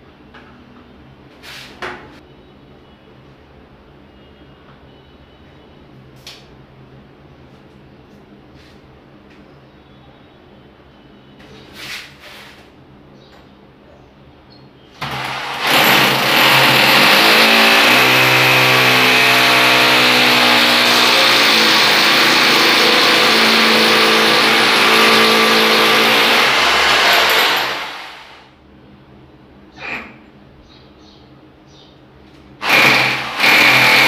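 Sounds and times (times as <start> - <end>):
hammer drill boring into tile: 15.0 - 28.4, 32.6 - 34.0.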